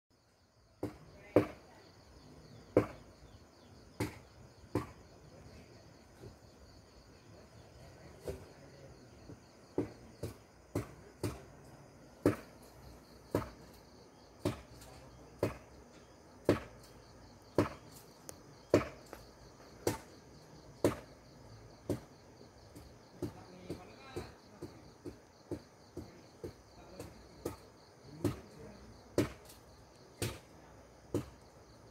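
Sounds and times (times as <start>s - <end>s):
insects chirring: 0.2s - 31.9s.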